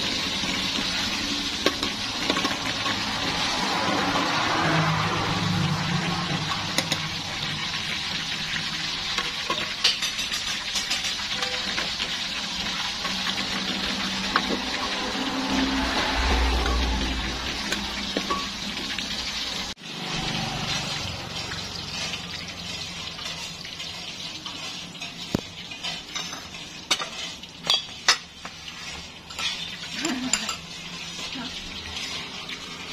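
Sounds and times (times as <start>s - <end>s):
oil sizzling in a wok: 0.0s - 32.9s
spoons clinking on ceramic bowls: 9.1s - 12.0s, 17.7s - 18.6s, 22.0s - 32.3s.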